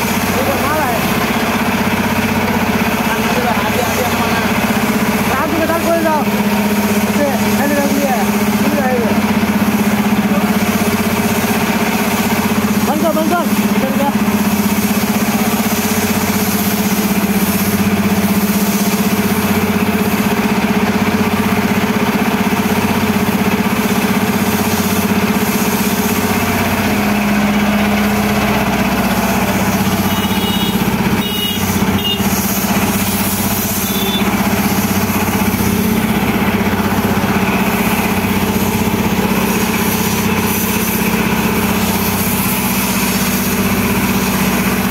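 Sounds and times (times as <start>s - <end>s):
engine idling: 0.0s - 44.9s
short high beeps: 33.8s - 34.2s.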